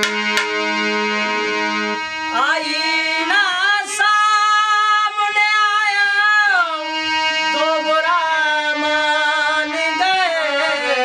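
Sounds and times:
harmonium chords: 0.0 - 11.0
man singing: 2.4 - 11.0.

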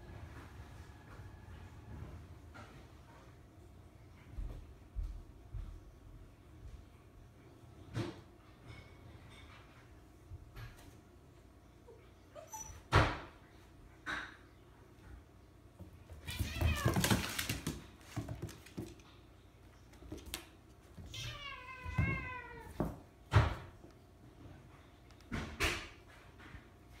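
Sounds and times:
cat yowling: 16.3 - 17.2.

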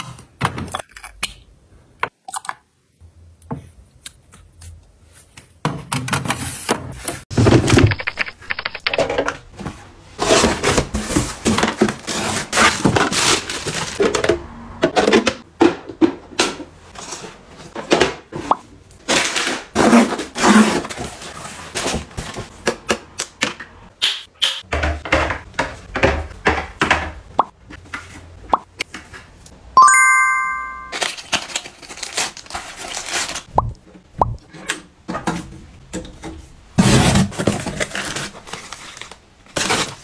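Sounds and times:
plastic pieces clicking and tapping: 7.8 - 9.3.

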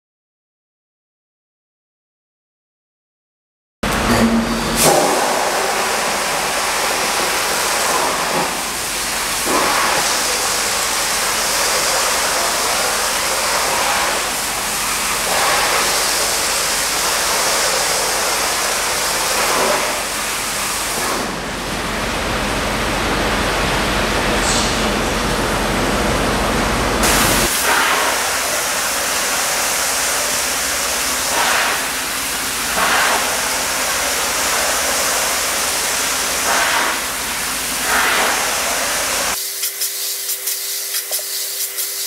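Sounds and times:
water jets spraying in tank: 4.8 - 21.6, 26.8 - 42.0.

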